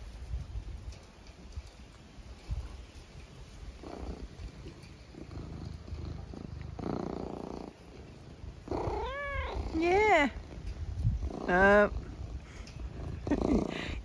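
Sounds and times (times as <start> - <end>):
cat purring: 3.6 - 14.0.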